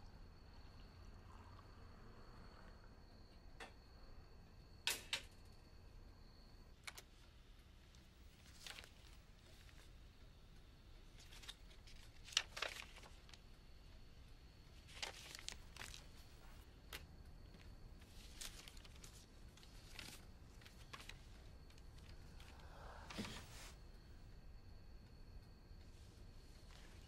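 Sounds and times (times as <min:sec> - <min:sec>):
paper rustling: 0:08.4 - 0:09.9, 0:11.1 - 0:13.4, 0:14.8 - 0:17.0, 0:17.6 - 0:23.8.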